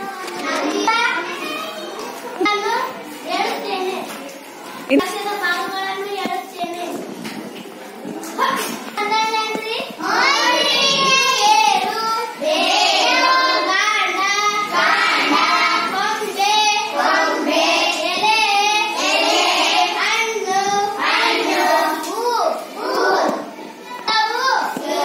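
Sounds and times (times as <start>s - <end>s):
child singing: 9.0s - 25.0s.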